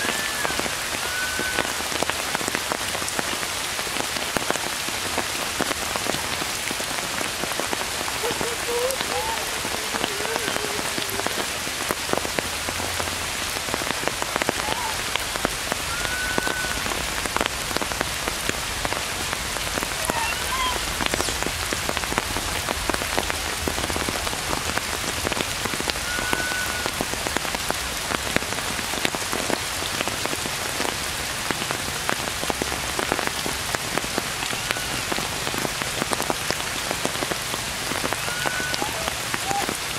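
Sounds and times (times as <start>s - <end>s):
faint short whistled calls: 0.0s - 1.8s, 15.9s - 16.9s, 26.0s - 26.9s, 38.2s - 39.6s
rain hissing: 0.0s - 39.9s
raindrops ticking: 0.0s - 39.9s.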